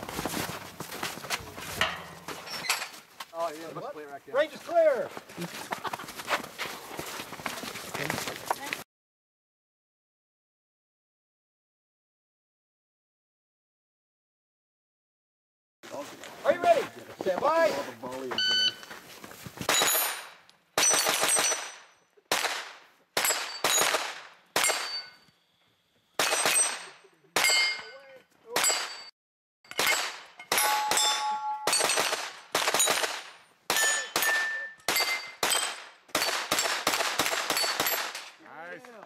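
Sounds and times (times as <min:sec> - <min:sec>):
gunshots: 0:19.7 - 0:25.1, 0:26.2 - 0:27.9, 0:29.7 - 0:38.3
steel plate ringing: 0:29.7 - 0:32.0, 0:33.7 - 0:35.7.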